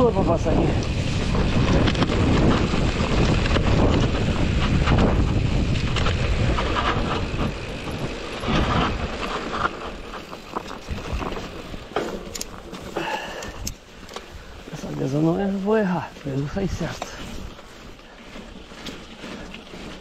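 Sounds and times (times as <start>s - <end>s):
bike rattling over stones: 0.0s - 20.0s
wind buffeting microphone: 0.0s - 20.0s.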